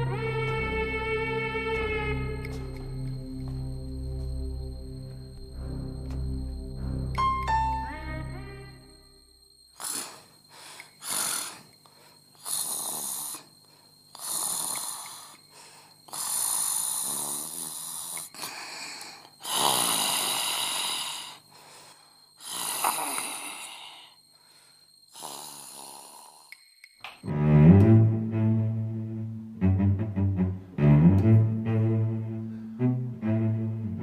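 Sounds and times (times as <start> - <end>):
person snoring: 9.7 - 11.7, 12.3 - 13.5, 14.1 - 21.4, 22.4 - 24.2, 25.1 - 26.5.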